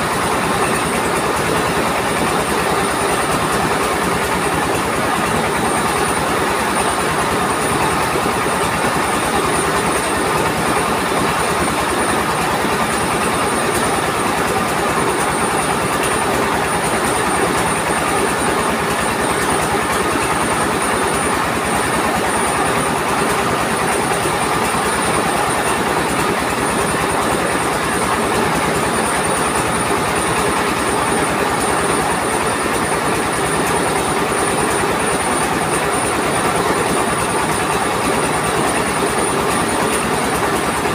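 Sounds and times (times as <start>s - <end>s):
rice mill mechanical clatter: 0.0s - 40.9s.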